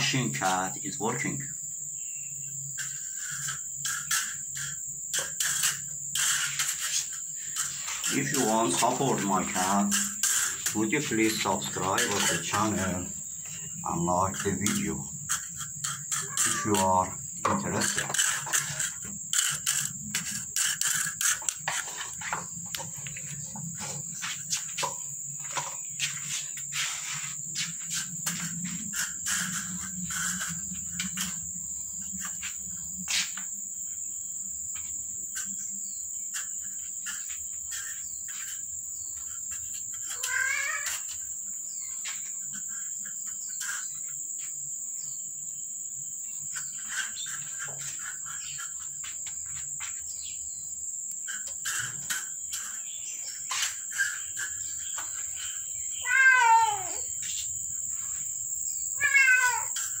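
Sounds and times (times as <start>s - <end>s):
high insect drone: 0.0s - 60.0s
cat meowing: 16.2s - 16.8s, 40.2s - 41.0s, 56.0s - 57.0s, 59.0s - 59.8s.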